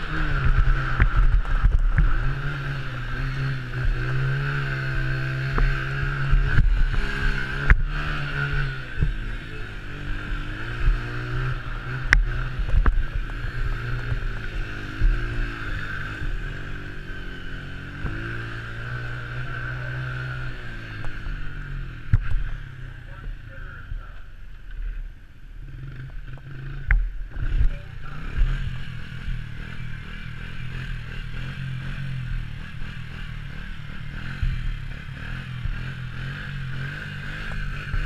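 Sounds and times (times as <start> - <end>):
quad bike engine revving: 0.0 - 24.9, 25.6 - 38.0.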